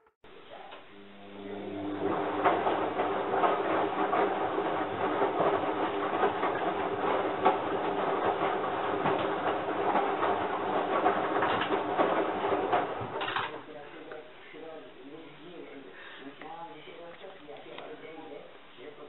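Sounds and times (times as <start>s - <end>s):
washing machine motor humming: 0.0s - 19.0s
drum knocking and clattering: 2.4s - 13.5s.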